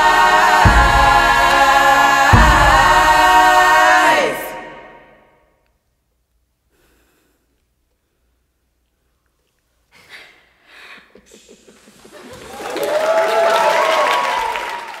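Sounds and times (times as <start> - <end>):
soft laughs and breaths: 9.9 - 12.5
people applauding: 11.9 - 15.0
whoops of cheering: 12.4 - 15.0.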